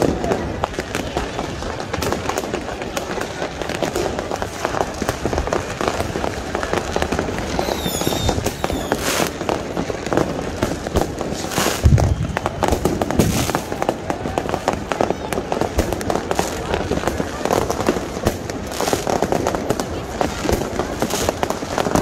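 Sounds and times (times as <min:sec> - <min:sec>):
fireworks crackling and popping: 0:00.0 - 0:22.0
firework whistle: 0:06.7 - 0:22.0
deep firework bang: 0:11.8 - 0:13.8.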